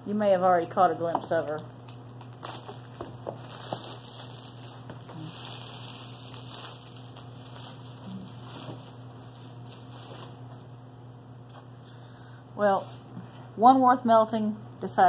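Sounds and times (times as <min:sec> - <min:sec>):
low electrical hum: 0:00.0 - 0:15.0
plastic wrap crinkling: 0:01.3 - 0:10.7.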